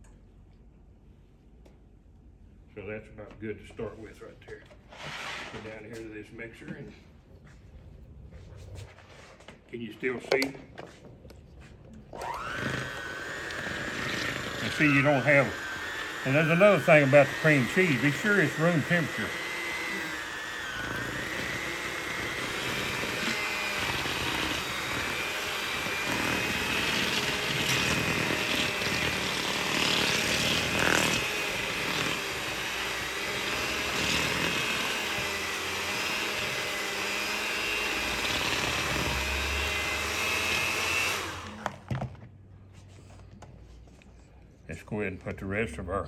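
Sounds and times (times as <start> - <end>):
electric hand mixer running: 10.4 - 42.1.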